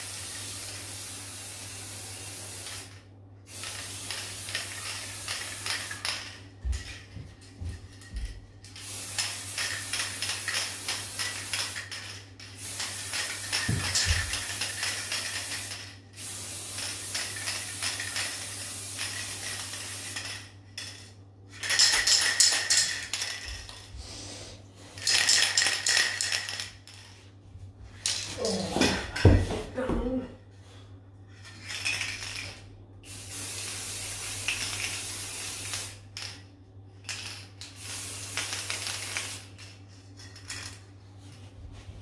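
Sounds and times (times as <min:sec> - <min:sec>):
spray paint can hissing: 0:00.0 - 0:06.4, 0:08.8 - 0:20.5, 0:21.6 - 0:23.7, 0:33.1 - 0:36.3, 0:37.1 - 0:39.7.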